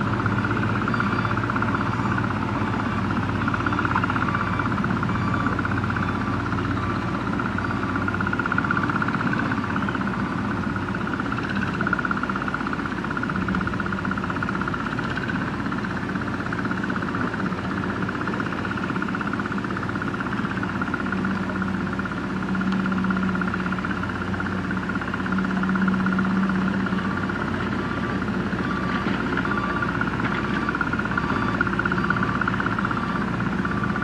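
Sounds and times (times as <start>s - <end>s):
excavator diesel engine running: 0.0s - 34.0s.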